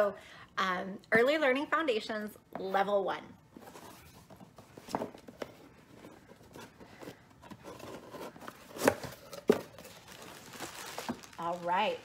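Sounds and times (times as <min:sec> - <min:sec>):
paper rustling and scraping: 0:05.8 - 0:12.0.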